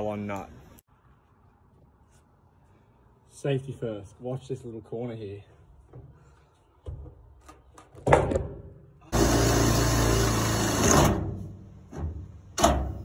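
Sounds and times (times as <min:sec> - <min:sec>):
power drill boring through metal: 0:09.1 - 0:11.2.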